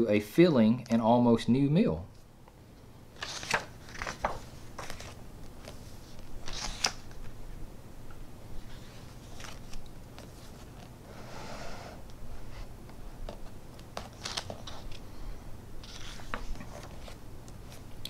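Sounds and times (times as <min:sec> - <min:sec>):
book pages turning: 0:03.2 - 0:07.4, 0:08.6 - 0:11.0, 0:13.2 - 0:15.0, 0:15.8 - 0:17.9.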